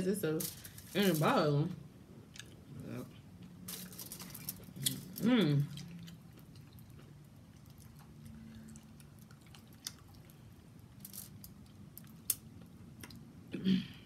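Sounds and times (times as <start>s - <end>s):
close-up chewing and mouth sounds: 2.3s - 13.3s.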